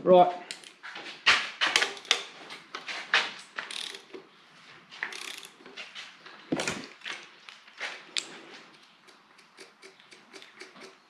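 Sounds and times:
socket ratchet clicking: 3.6s - 4.2s, 5.1s - 5.6s.

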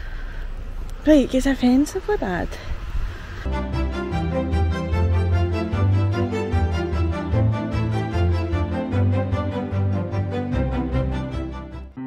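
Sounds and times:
instrumental background music: 3.5s - 12.0s.

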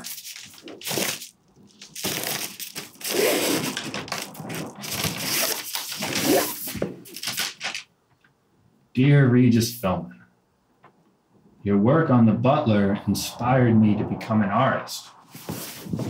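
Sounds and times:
paper mailer crinkling and tearing: 0.0s - 7.9s.

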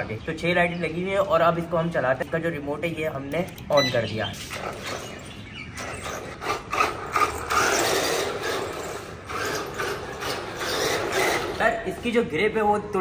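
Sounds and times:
model car electric motor whirring: 5.8s - 11.7s.

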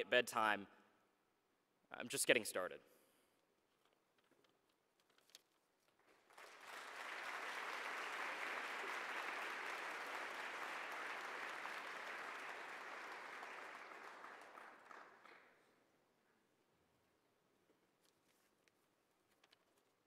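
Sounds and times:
audience applauding: 6.1s - 15.7s.

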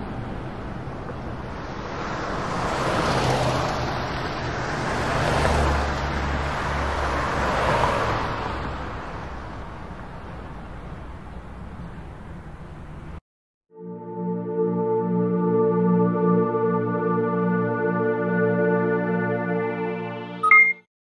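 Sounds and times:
traffic noise in tunnel: 0.0s - 13.2s.

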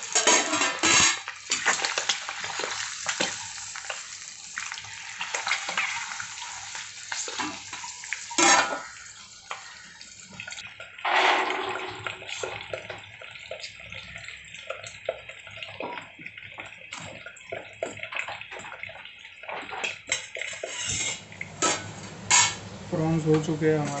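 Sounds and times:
fork clinking and scraping pot: 0.0s - 1.7s, 19.8s - 22.7s
hot oil sizzling: 0.0s - 24.0s.

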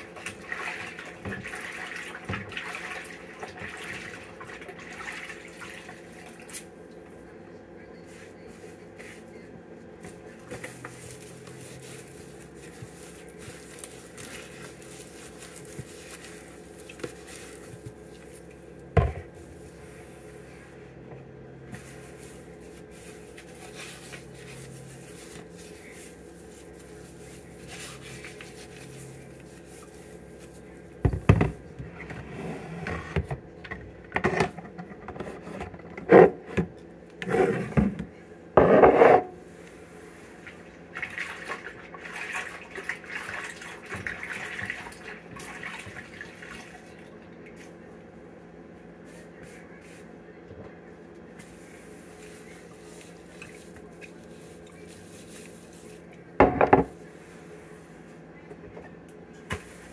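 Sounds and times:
steady low hum: 0.0s - 59.9s
cloth wiping glass jars: 10.0s - 18.5s, 21.8s - 30.8s.

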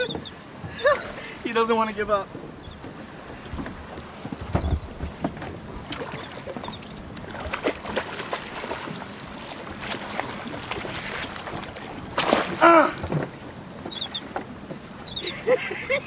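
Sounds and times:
water splashing against boat: 0.0s - 16.0s.

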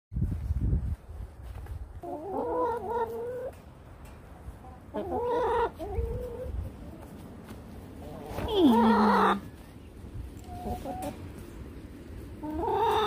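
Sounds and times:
hens calling: 2.0s - 3.6s, 4.4s - 13.0s.

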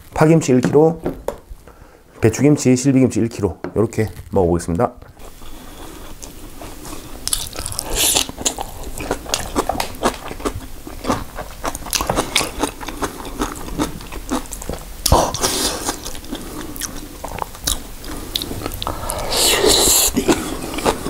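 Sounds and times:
crunching and chewing kimchi: 5.2s - 21.0s.

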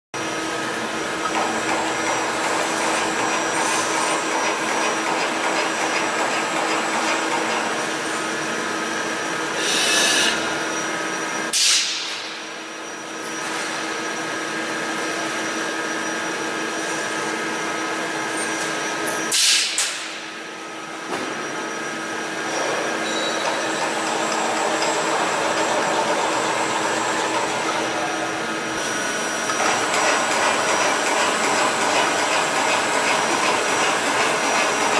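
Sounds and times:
short loud hisses: 9.6s - 10.5s, 11.5s - 12.1s
robot servo whine: 9.6s - 10.8s.

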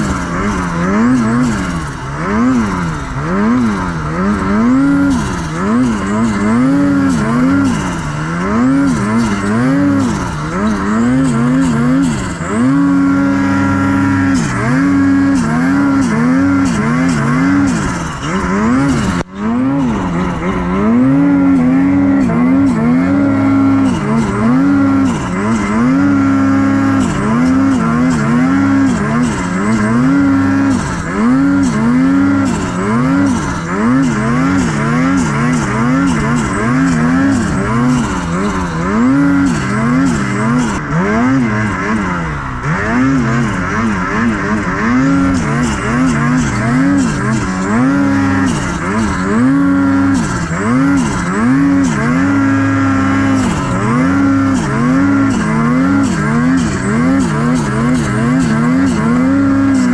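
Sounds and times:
snowmobile engine revving: 0.0s - 59.9s.

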